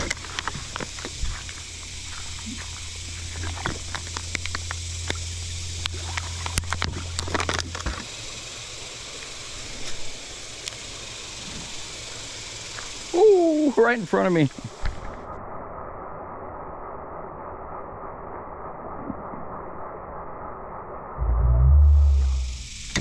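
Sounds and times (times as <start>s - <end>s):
river water hissing: 0.0s - 15.3s, 21.8s - 23.0s.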